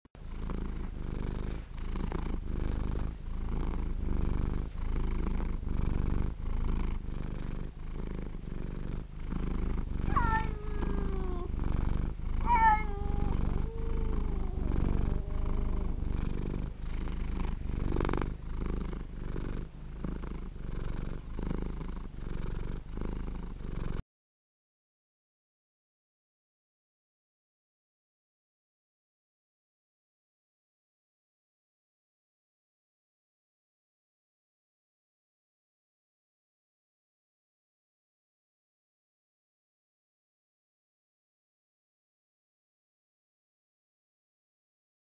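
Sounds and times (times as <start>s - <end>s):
cat purring: 0.2s - 24.0s.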